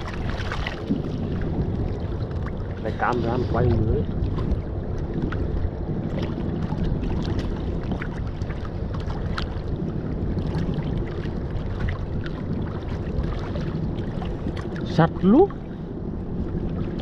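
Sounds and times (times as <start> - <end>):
boat engine rumble: 0.0 - 17.0
water slapping against hull: 0.0 - 17.0
wind on microphone: 0.0 - 17.0.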